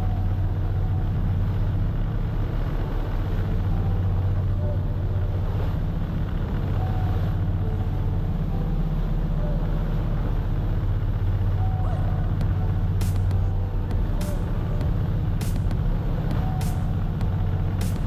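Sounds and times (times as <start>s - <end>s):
boat engine humming: 0.0s - 18.0s.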